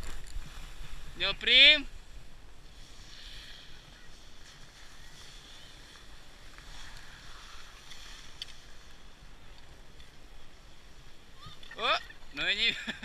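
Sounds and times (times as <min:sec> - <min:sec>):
skis scraping over snow: 0:00.0 - 0:11.2
faint ticks: 0:07.8 - 0:08.6.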